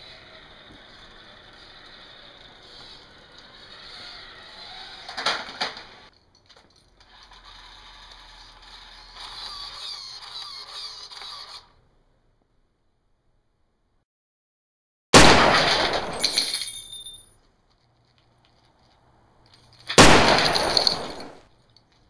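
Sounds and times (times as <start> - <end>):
toy car motor whirring: 0.0 - 6.1, 7.0 - 11.8.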